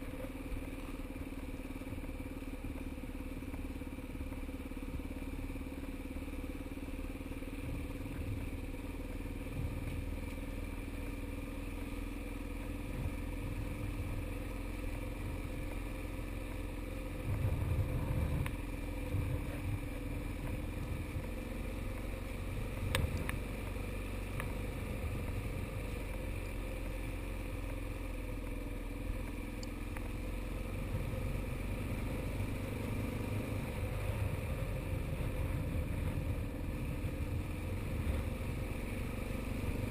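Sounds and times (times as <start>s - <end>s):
motorcycle engine running: 0.0s - 39.9s
wind rumble on microphone: 7.6s - 10.4s, 12.8s - 14.4s, 17.1s - 26.1s, 33.5s - 39.0s.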